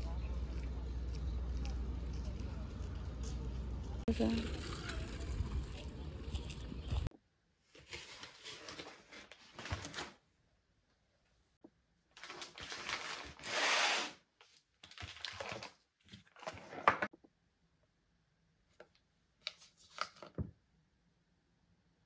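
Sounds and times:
rustling and handling noises: 4.3 - 10.3, 12.1 - 17.1.

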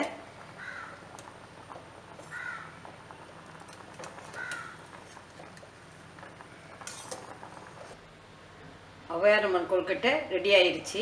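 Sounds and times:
pot bubbling at a boil: 0.0 - 8.8
crow cawing: 0.6 - 1.0, 2.3 - 2.8, 4.3 - 4.8.

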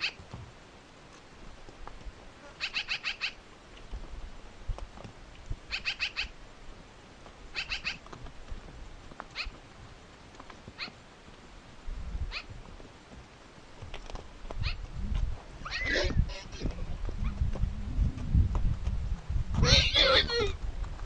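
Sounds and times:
bird chipping calls: 2.6 - 3.4, 5.7 - 6.3, 7.5 - 8.0, 9.3 - 9.6, 14.6 - 14.8
low rumble: 14.9 - 19.9.

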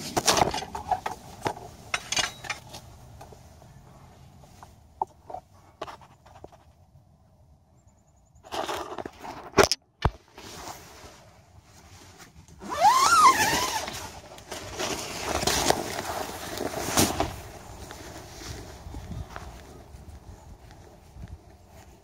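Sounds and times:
loud rustling and scuffling: 10.2 - 22.0.

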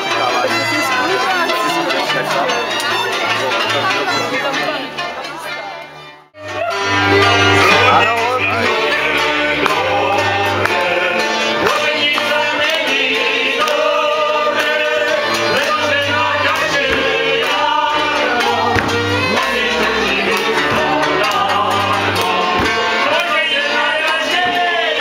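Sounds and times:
steady bass line: 6.4 - 13.2, 14.5 - 23.2
live band dance music: 6.4 - 25.0
voices singing together: 6.4 - 25.0.

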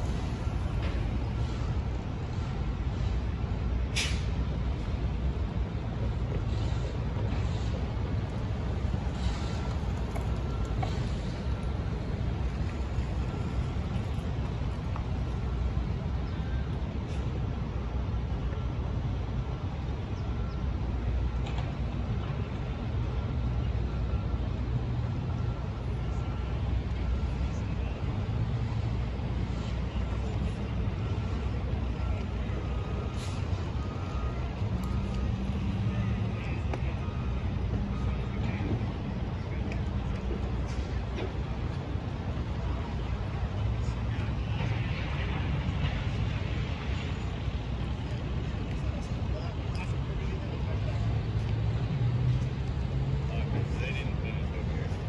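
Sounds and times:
road traffic rumble: 0.0 - 55.0
brief hiss: 3.9 - 4.4.

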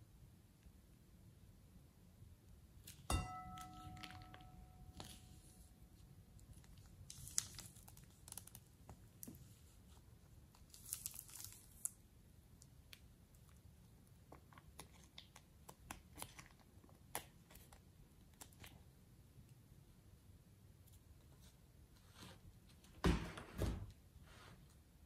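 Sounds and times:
plastic bag crinkling: 6.6 - 8.7, 10.6 - 12.0.

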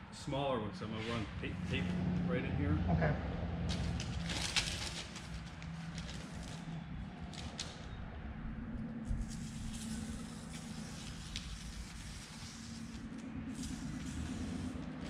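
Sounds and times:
low hum: 1.3 - 15.0
paper and tape being handled: 3.7 - 8.0, 9.0 - 15.0.

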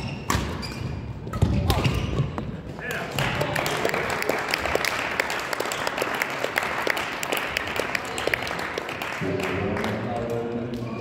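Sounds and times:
crowd applauding: 3.0 - 10.4.

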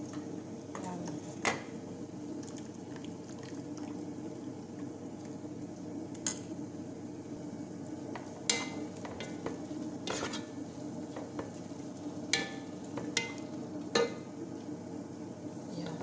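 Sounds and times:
low sizzle: 0.0 - 16.0
wooden spatula scraping pot: 10.0 - 10.5.

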